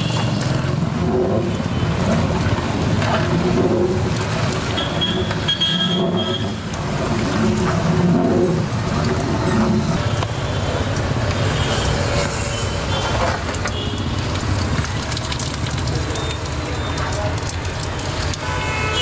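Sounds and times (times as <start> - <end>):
low rumble of traffic: 0.0 - 19.0.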